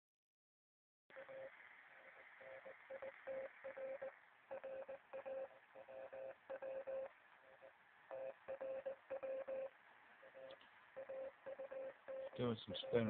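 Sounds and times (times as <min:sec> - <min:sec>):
morse code beeps: 0:02.4 - 0:13.0
radio hiss and static: 0:09.2 - 0:13.0.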